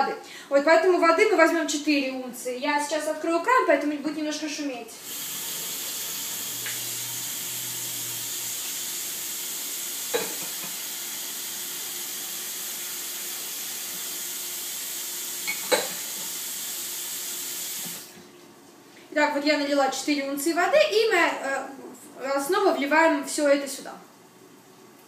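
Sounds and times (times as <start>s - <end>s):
kitchen tap running: 5.0s - 18.4s.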